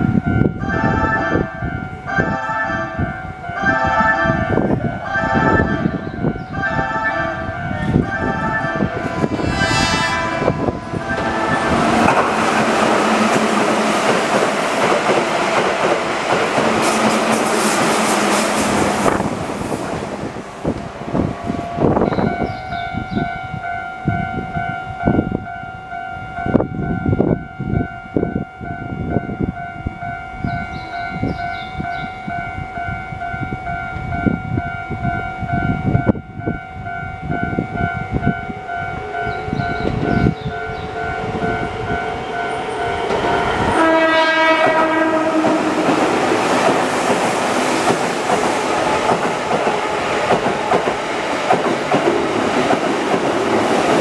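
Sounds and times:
level-crossing warning bell: 0.0s - 13.9s, 20.7s - 46.4s
electric train passing: 0.0s - 54.0s
wheels clacking on rail joints: 11.0s - 19.0s, 44.6s - 54.0s.

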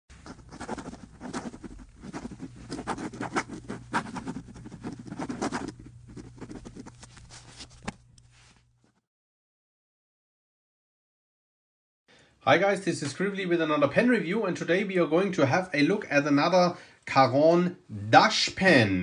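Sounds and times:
pen scratching on paper: 0.1s - 7.9s
faint low hum: 0.1s - 9.0s.

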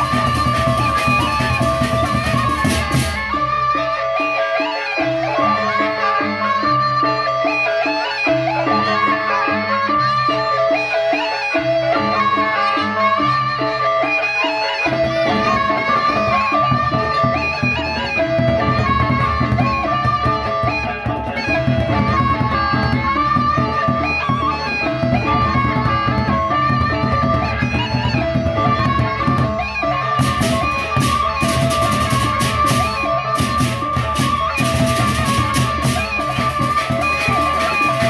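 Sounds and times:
large drums beating: 30.2s - 38.0s.

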